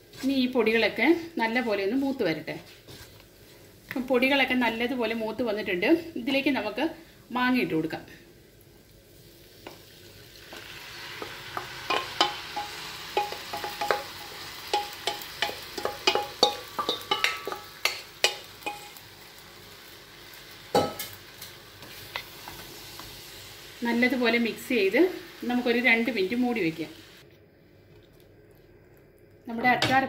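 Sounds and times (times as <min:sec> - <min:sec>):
food sizzling in oil: 0:00.0 - 0:27.2
wooden spatula knocking pan: 0:11.6 - 0:18.8.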